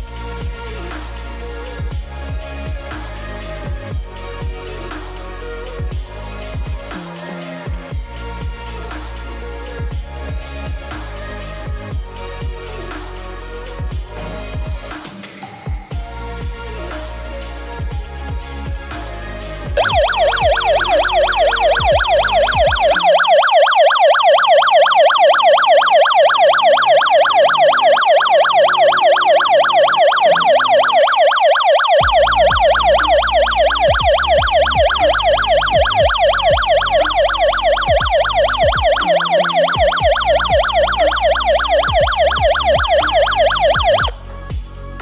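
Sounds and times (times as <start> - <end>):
alarm siren warbling: 19.8 - 44.1.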